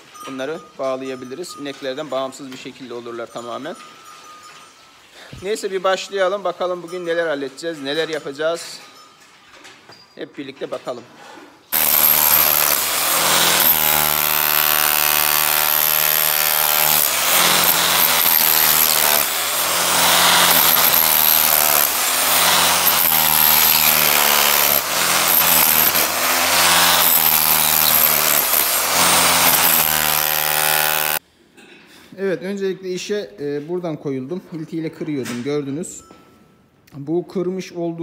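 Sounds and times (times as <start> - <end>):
demolition hammer chiselling concrete: 11.8 - 31.2.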